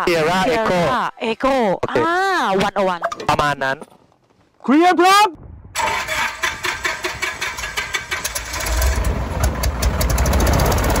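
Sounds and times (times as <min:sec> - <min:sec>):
aircraft piston engine starting: 0:05.8 - 0:11.0.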